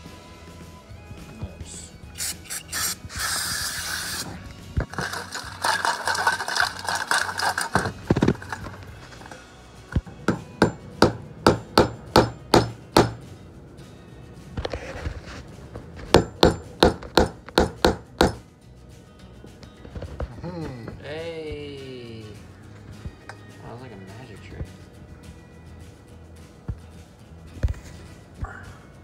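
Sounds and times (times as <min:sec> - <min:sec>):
hiss: 0:02.1 - 0:04.4
metal parts scraping in bowl: 0:02.2 - 0:09.6.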